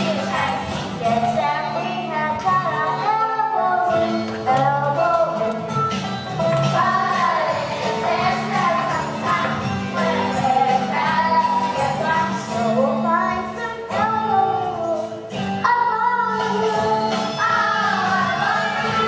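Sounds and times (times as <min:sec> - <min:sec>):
instrumental accompaniment: 0:00.0 - 0:19.0
children singing: 0:06.6 - 0:19.0.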